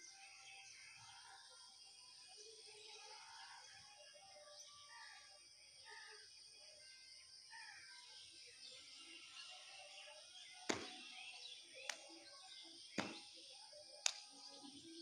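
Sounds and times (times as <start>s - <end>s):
birds chirping: 8.0s - 15.0s.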